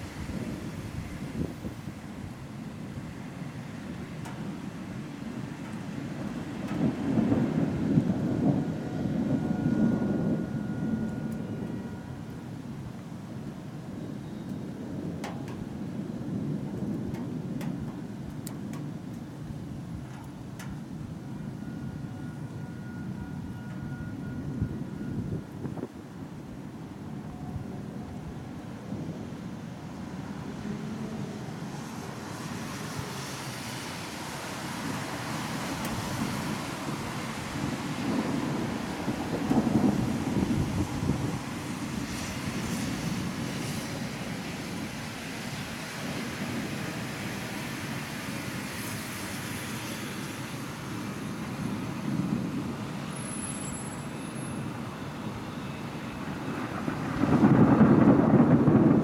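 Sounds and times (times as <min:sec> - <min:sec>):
distant thunder rumbling: 0:04.4 - 0:12.4, 0:36.6 - 0:44.4, 0:56.2 - 0:59.0
storm hiss: 0:30.2 - 0:59.0.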